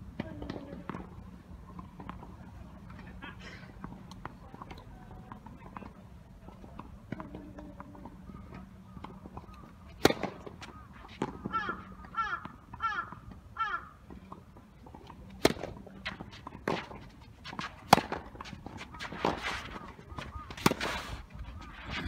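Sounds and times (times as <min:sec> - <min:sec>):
tennis balls bouncing and hit: 0:00.0 - 0:22.0
crow cawing: 0:11.5 - 0:14.0.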